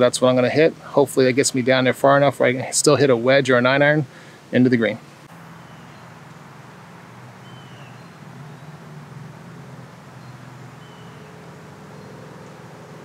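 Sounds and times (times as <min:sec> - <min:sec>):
high bird chirps: 0:05.4 - 0:06.4, 0:07.4 - 0:09.0, 0:09.8 - 0:13.0.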